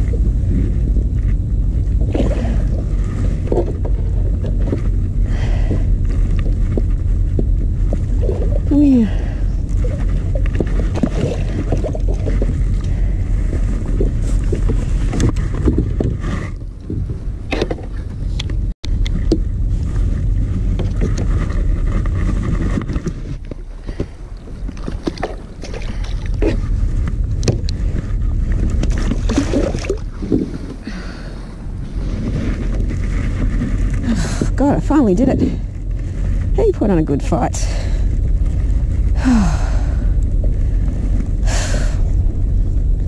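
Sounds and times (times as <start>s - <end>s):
water lapping at kayak hull: 0.0s - 18.4s, 19.1s - 36.7s
wind rumbling on microphone: 0.0s - 43.0s
knocks and splashes: 9.7s - 16.2s, 20.6s - 30.8s.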